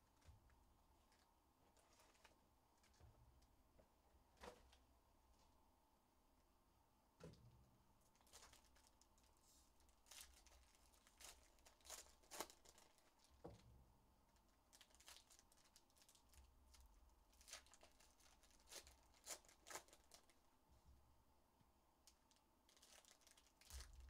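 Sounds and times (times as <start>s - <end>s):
foil wrappers tearing and crinkling: 8.2s - 9.1s, 10.0s - 13.3s, 14.7s - 16.8s, 17.4s - 20.4s, 22.7s - 24.0s.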